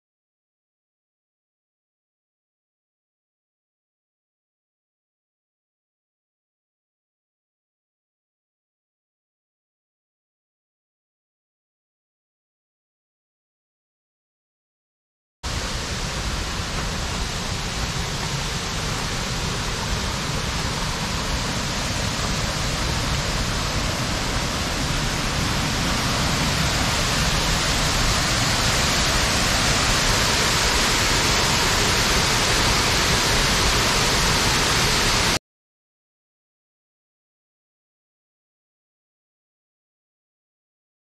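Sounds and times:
waterfall roaring: 0:15.5 - 0:35.4.

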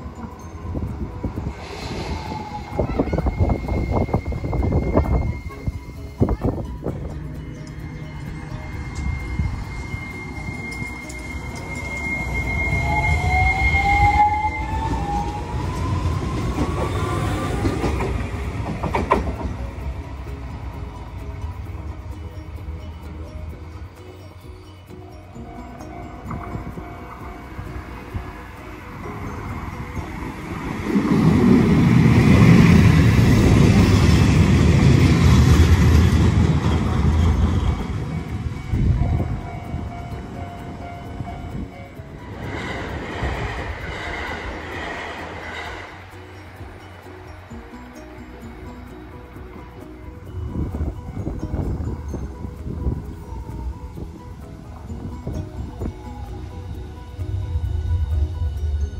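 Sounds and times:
wind buffeting microphone: 0:00.0 - 0:23.1, 0:25.8 - 0:47.8, 0:50.1 - 0:58.9
tram motor whining: 0:00.0 - 0:58.9
tram wheels rumbling: 0:00.0 - 0:58.9
steady high whistle: 0:00.4 - 0:06.6, 0:07.6 - 0:17.8.

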